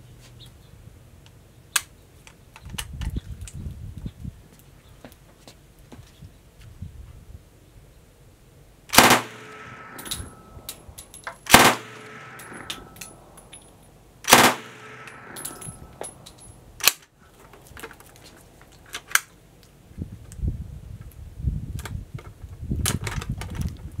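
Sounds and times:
submachine gun bursts: 8.9 - 10.3, 11.5 - 13.0, 14.3 - 15.6
gunfire echo: 8.9 - 10.6, 11.5 - 13.3, 14.3 - 16.0.

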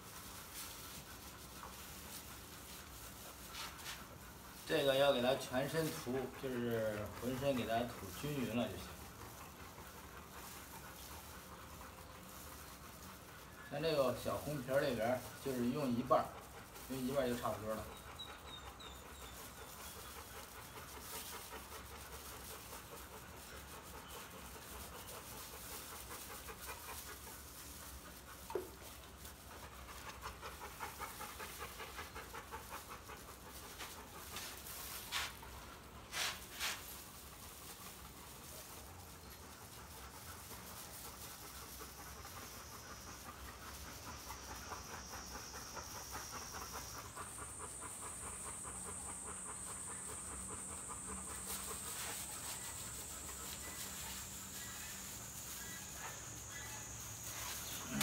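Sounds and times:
dog panting: 0.0 - 58.0.

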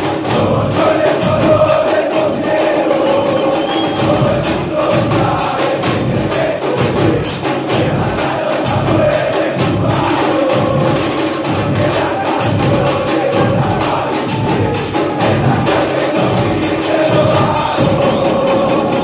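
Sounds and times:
bass drums: 0.0 - 19.0
cymbals: 0.0 - 19.0
fans chanting: 0.0 - 19.0.

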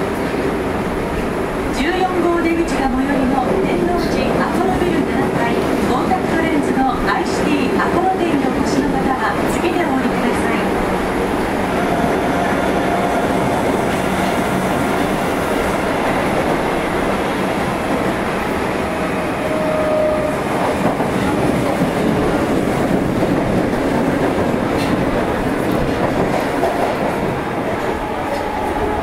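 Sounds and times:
subway train wheels rumbling: 0.0 - 29.0.

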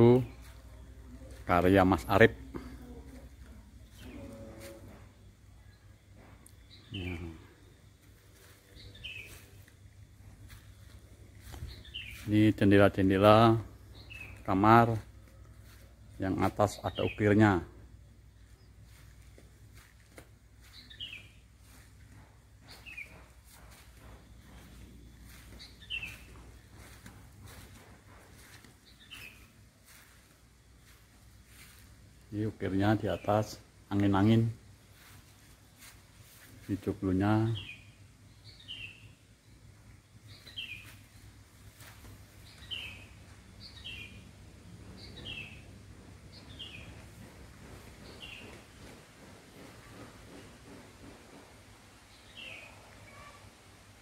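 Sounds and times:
faint low hum: 0.0 - 16.7
bird chirping: 0.0 - 19.9, 20.5 - 50.8, 52.1 - 53.4
faint outdoor background noise: 0.0 - 54.0.

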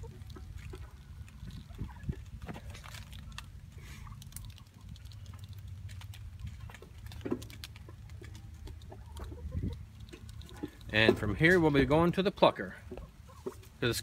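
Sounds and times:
chickens scuffling: 0.0 - 14.0.

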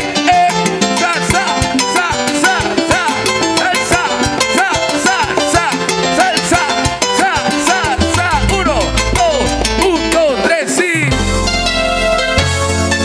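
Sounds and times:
hand and stick percussion: 0.4 - 10.6
salsa orchestra playing: 3.2 - 13.0.

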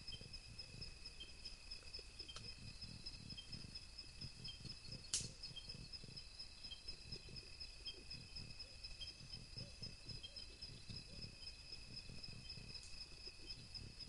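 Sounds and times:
insects trilling: 0.0 - 14.0
sharp click: 5.1 - 5.4.

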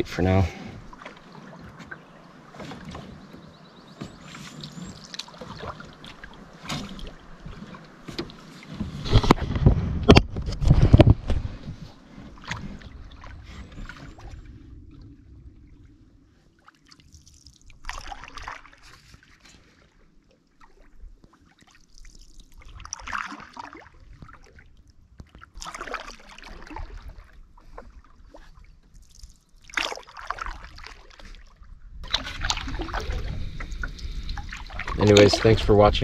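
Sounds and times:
water splashing and dripping: 0.8 - 9.3, 16.6 - 19.4, 20.5 - 36.0
low rumble: 9.1 - 16.6.

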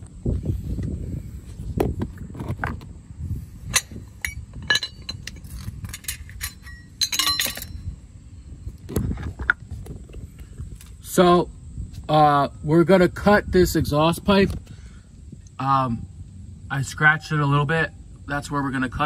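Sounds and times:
low rumbling handling noise: 0.0 - 12.2
metallic clinks and rattles: 3.7 - 8.0.

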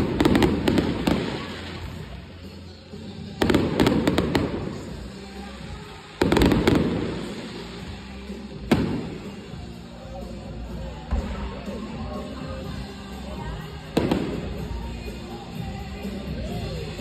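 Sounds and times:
fireworks bursting: 0.0 - 9.9, 13.8 - 15.7.

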